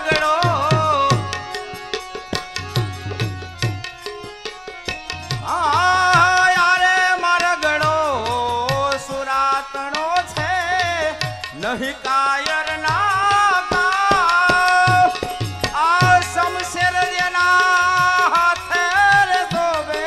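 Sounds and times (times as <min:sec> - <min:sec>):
hand drum playing: 0:00.0 - 0:06.3, 0:13.6 - 0:16.9
man singing folk melody: 0:05.4 - 0:20.0.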